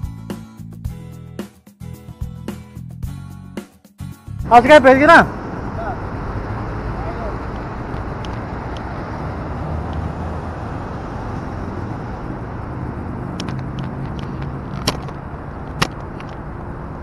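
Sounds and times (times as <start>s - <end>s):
traffic rumble: 4.4s - 17.0s.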